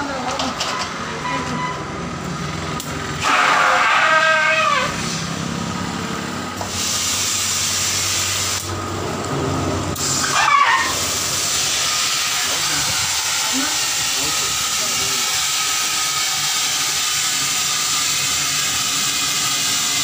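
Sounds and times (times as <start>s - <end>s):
loud downward sliding tone: 3.2s - 5.3s, 9.4s - 19.9s
compressed air hissing: 3.2s - 5.4s, 6.6s - 8.8s, 9.9s - 20.0s.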